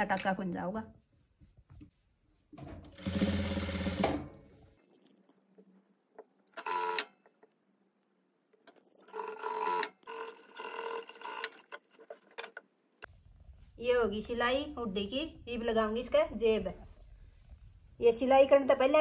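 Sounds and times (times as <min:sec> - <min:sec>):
sewing machine stitching: 0:02.9 - 0:04.2.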